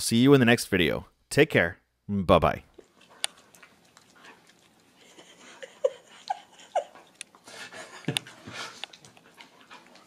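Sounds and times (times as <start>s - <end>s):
wet licking clicks: 2.7s - 5.2s, 7.0s - 7.4s, 8.0s - 10.0s.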